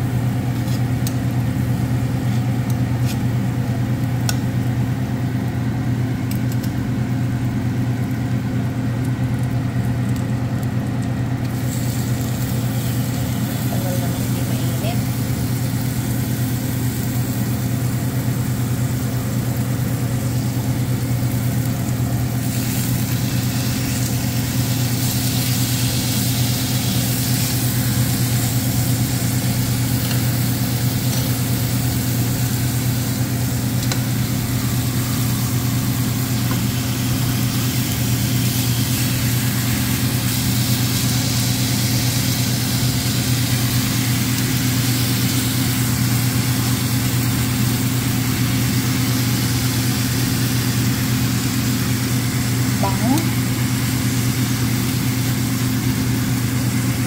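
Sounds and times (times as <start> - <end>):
low mechanical hum: 0.0 - 57.0
steaks sizzling in a frying pan: 11.4 - 57.0.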